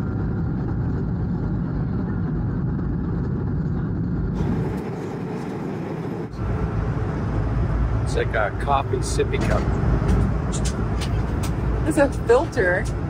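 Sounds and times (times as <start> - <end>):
jet engines droning in cabin: 0.0 - 13.0.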